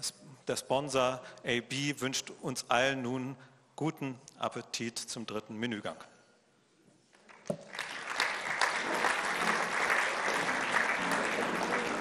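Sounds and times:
audience applauding: 7.3s - 12.0s.

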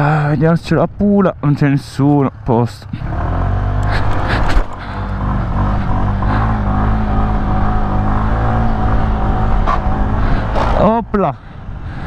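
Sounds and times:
scooter engine droning: 2.4s - 11.9s.

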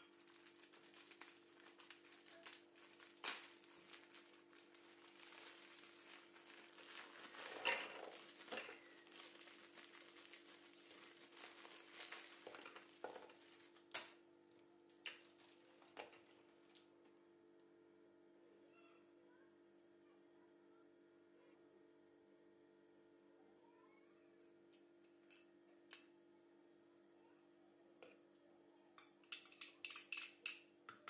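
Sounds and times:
biscuits clattering into plastic bowl: 0.0s - 14.2s
plastic wrapper crinkling: 0.0s - 14.2s, 15.1s - 16.8s
faint steady hum: 0.0s - 31.0s.

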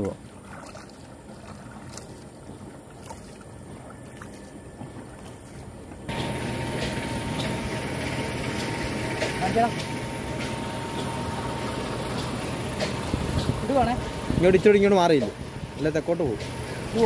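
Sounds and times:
canoe paddling: 0.0s - 6.8s
pump motor hum and water rush: 0.0s - 17.0s.

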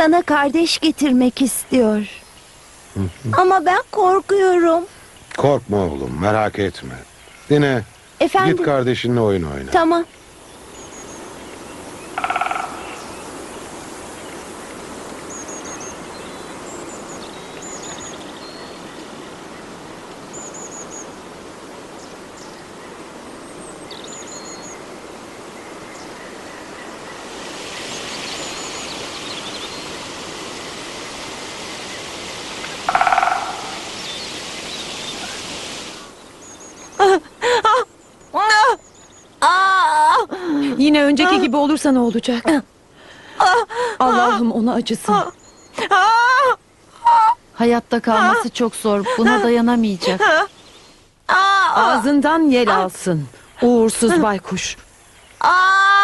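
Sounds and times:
small birds chirping: 0.0s - 56.0s
steady hiss: 0.0s - 56.0s
short pitched bird calls: 32.6s - 37.0s.

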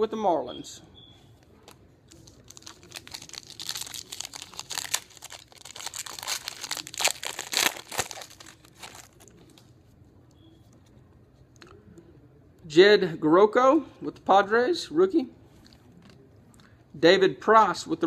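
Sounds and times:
plastic crinkling: 1.6s - 9.7s.

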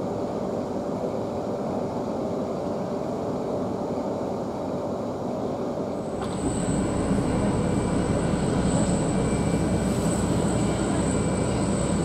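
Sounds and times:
high-pitched whine: 6.0s - 12.0s
low cabin rumble: 6.0s - 12.0s.

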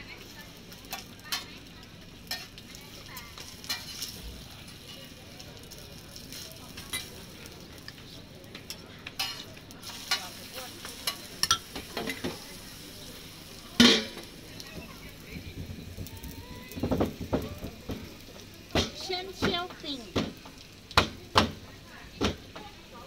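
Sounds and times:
pancake sizzling on griddle: 0.0s - 23.0s
fork and spatula scraping griddle: 2.2s - 2.6s, 3.4s - 4.2s, 8.7s - 12.3s.

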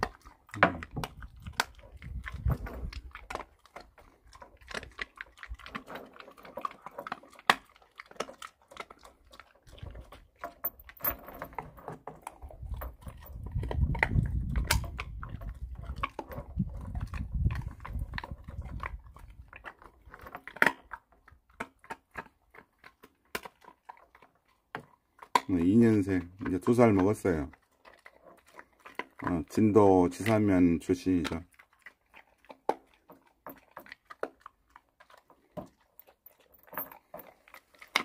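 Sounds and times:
dog crunching and licking food: 0.0s - 38.0s
metal chain clinking on boards: 10.4s - 13.3s, 36.0s - 38.0s.

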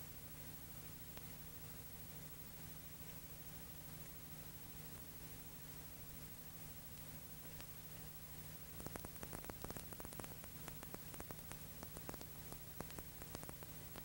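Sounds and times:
film soundtrack hiss and hum: 0.0s - 14.0s
crackling clicks: 6.9s - 7.8s, 8.7s - 14.0s.

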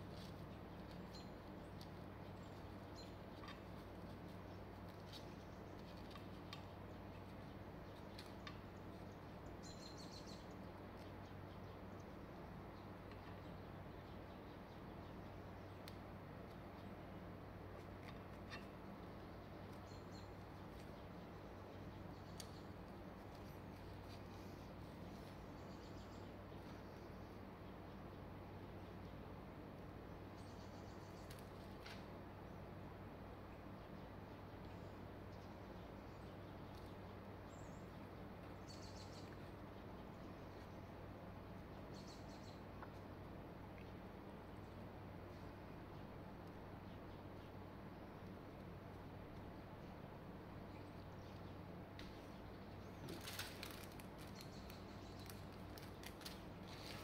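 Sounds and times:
low steady hum: 0.0s - 57.0s
faint sharp clicks: 15.8s - 16.6s.

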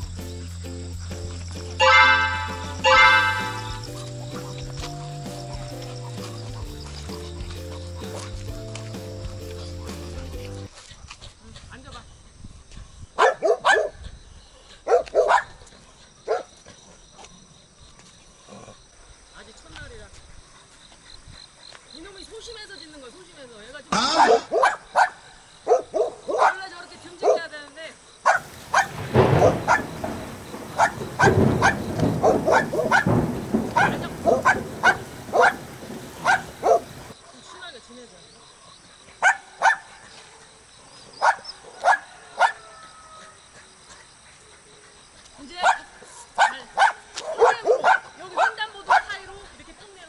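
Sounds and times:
dog barking: 1.8s - 5.2s, 13.2s - 14.0s, 14.8s - 15.6s, 16.3s - 16.5s, 24.2s - 27.5s, 28.2s - 37.1s, 39.2s - 40.0s, 41.2s - 42.7s, 45.6s - 49.2s.

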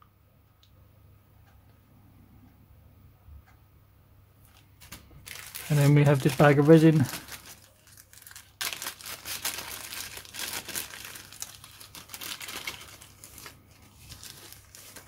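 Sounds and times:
plastic bag crinkling: 4.5s - 15.0s.

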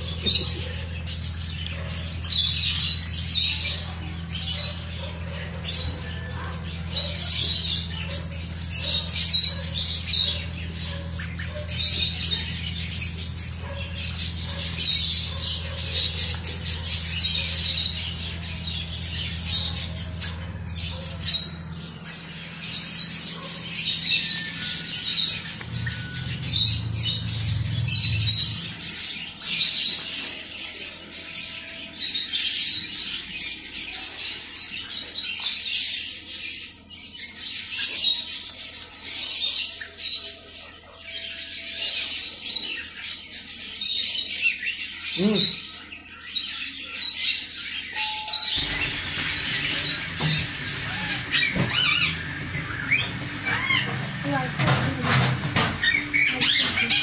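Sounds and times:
low hum: 0.0s - 29.2s
ducklings peeping: 0.0s - 57.0s.

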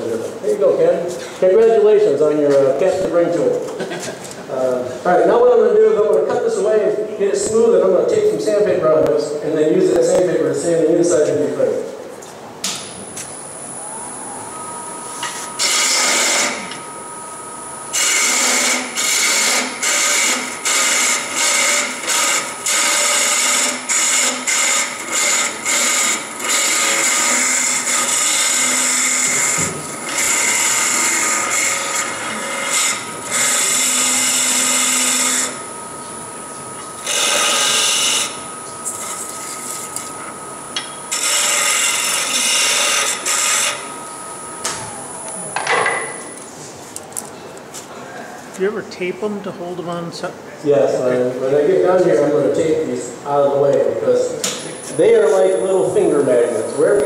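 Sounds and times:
wood lathe whine: 12.9s - 46.5s
turning tool cutting wood: 15.3s - 16.8s, 17.9s - 36.1s, 36.8s - 44.2s.

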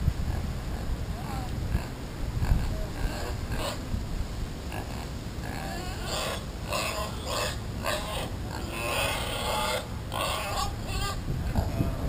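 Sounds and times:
pig grunting: 4.7s - 12.0s.

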